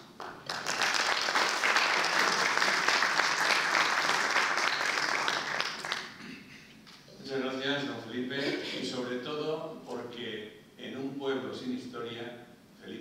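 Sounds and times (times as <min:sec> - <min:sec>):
applause: 0:00.0 - 0:06.2.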